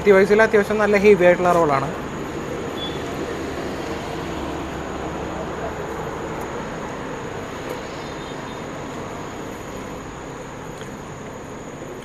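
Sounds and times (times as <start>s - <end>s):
faint high whine: 0.0s - 6.0s.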